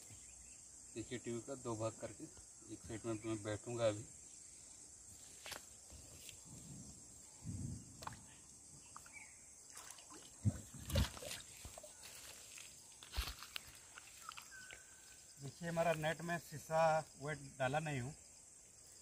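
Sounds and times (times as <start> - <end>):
river water splashing: 9.0 - 12.2, 13.8 - 14.6.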